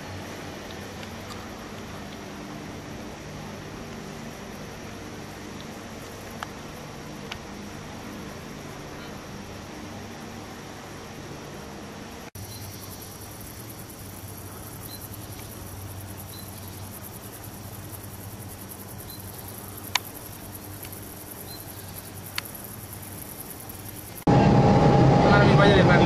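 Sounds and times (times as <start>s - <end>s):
insects chirring: 0.0s - 24.3s
sharp clicks: 19.9s - 21.0s.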